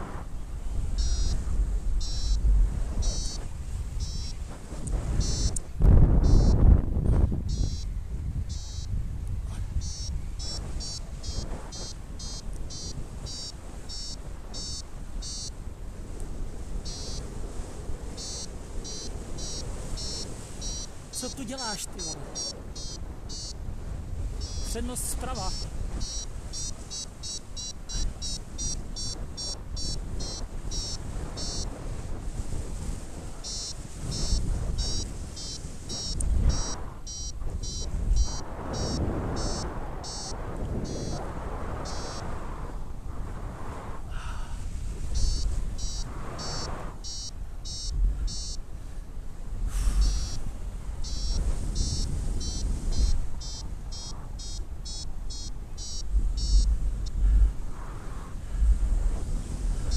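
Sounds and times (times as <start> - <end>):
wind rumble on microphone: 0.0 - 59.9
variometer high-pitched beeps: 1.0 - 4.5, 5.1 - 5.6, 6.2 - 6.7, 7.4 - 9.0, 9.8 - 15.6, 16.8 - 17.3, 18.1 - 23.6, 24.4 - 31.8, 33.4 - 41.2, 41.8 - 42.3, 45.1 - 48.6, 50.0 - 50.4, 51.0 - 57.5.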